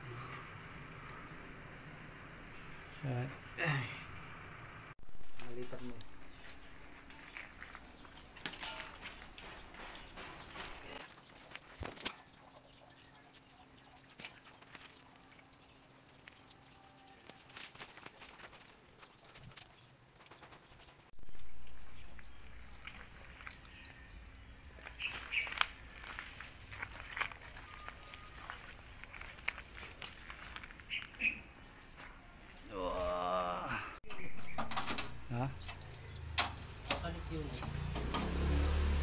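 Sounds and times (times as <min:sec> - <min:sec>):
high-pitched insect buzz: 0:05.0 - 0:11.0.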